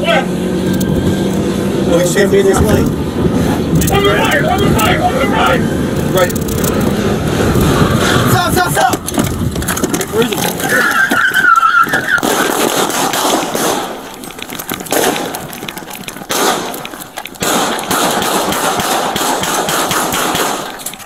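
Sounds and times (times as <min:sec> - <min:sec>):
running footfalls: 0:07.5 - 0:21.0.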